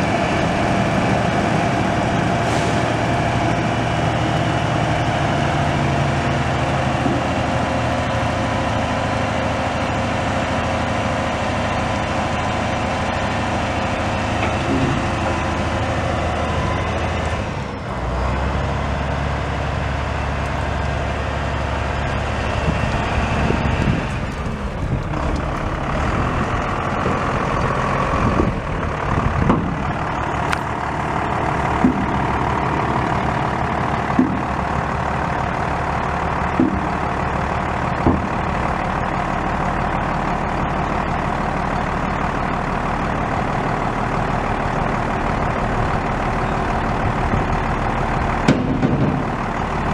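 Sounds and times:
diesel truck engine running: 0.0s - 49.9s
short knocks: 34.1s - 34.6s, 36.5s - 37.0s.

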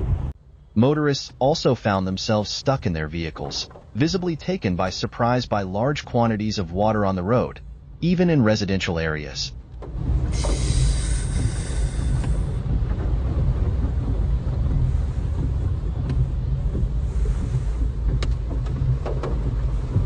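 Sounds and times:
wind noise on microphone: 0.0s - 0.4s, 9.7s - 20.0s
low rumble: 0.0s - 20.0s.

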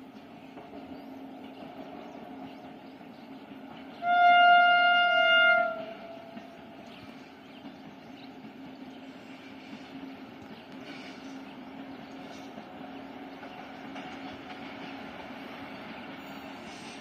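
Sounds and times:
distant train running hum: 0.0s - 17.0s
train horn blast: 4.0s - 6.4s.

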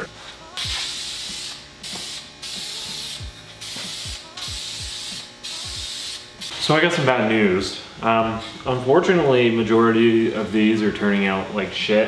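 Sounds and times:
aerosol spray can hissing: 0.6s - 6.5s.

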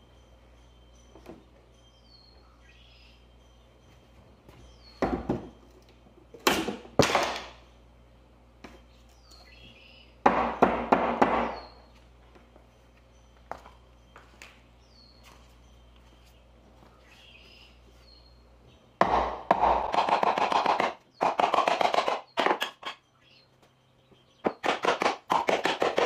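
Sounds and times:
claw hammer knocking on wood: 10.2s - 11.7s.

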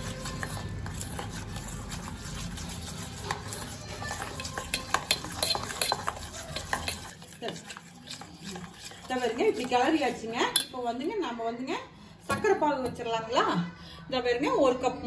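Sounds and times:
spoon stirring thick paste: 0.0s - 11.2s
spoon clinking on metal bowl: 2.8s - 10.8s.

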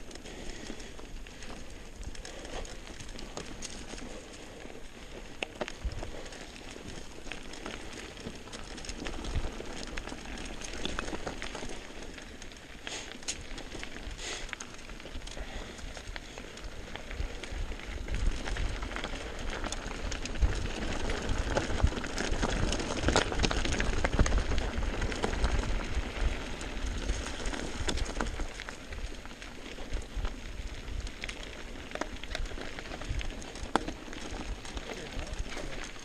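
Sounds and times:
bike clicks and rattles: 0.0s - 36.0s
tyres crunching over gravel: 0.0s - 36.0s
wind rumble on microphone: 4.9s - 12.2s, 15.2s - 36.0s.

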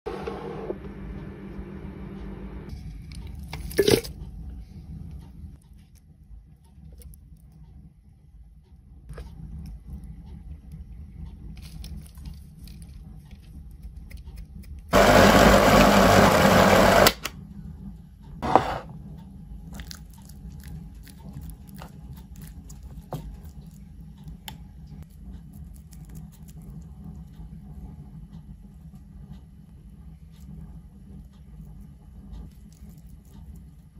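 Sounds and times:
electric blender running: 0.1s - 2.6s, 15.0s - 17.3s.

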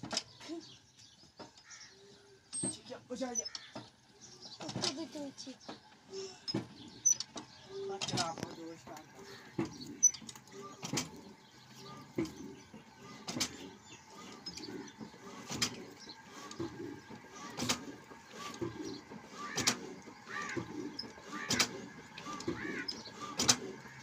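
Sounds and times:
heavy engine knock: 8.1s - 24.0s.

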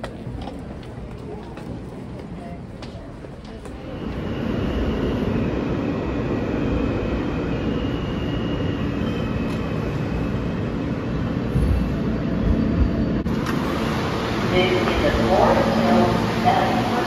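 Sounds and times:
subway train rumble: 0.0s - 17.0s
faint high whine: 3.8s - 17.0s.

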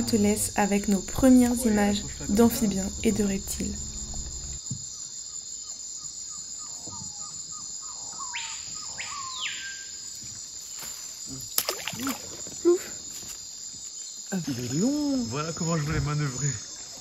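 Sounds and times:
crickets droning: 0.0s - 17.0s.

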